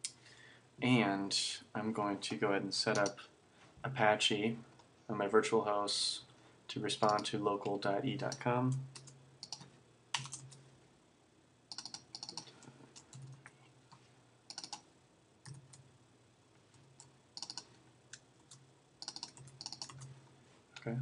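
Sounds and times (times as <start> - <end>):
computer keyboard typing: 8.3 - 10.6, 11.7 - 13.5, 14.5 - 14.8, 16.7 - 20.1.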